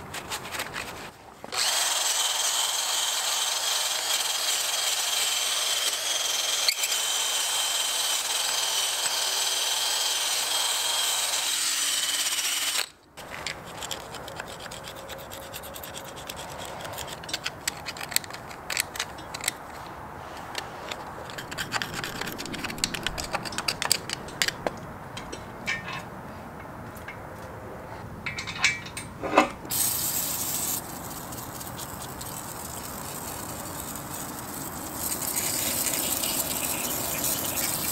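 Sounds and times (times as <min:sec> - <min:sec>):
drill wire brush whining and grinding: 0:01.5 - 0:13.0, 0:29.7 - 0:37.9
scratchy scraping on metal: 0:13.2 - 0:24.5
scattered clicks: 0:20.5 - 0:25.4.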